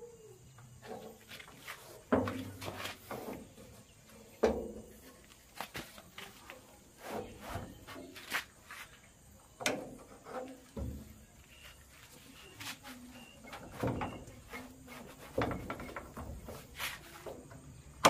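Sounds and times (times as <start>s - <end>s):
metallic knocks and rattles: 15.3s - 16.7s.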